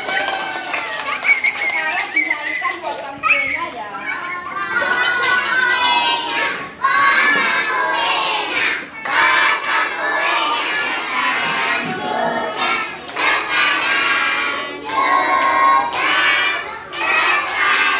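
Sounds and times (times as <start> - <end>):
young children singing together: 4.1 - 17.9.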